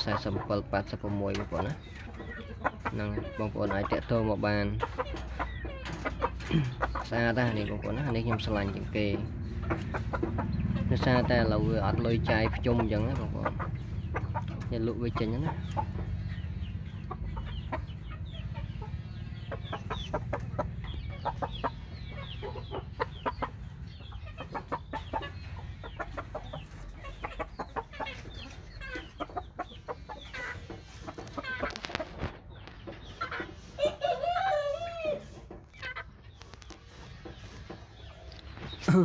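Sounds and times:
chickens clucking: 0.0 - 39.0
rooster crowing: 34.1 - 35.3.

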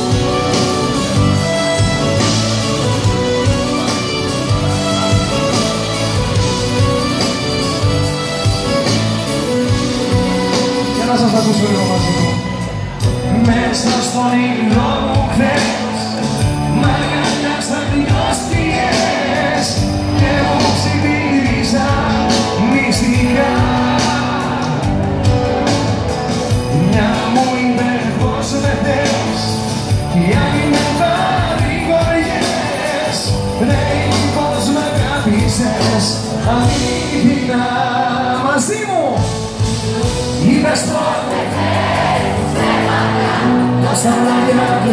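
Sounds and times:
pop band playing amplified music: 0.0 - 44.9
man singing: 13.0 - 25.0, 26.5 - 39.2, 40.3 - 41.6, 43.7 - 44.9.

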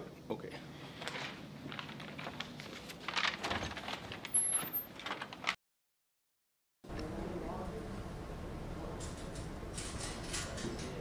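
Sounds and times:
rustling: 0.9 - 5.6.

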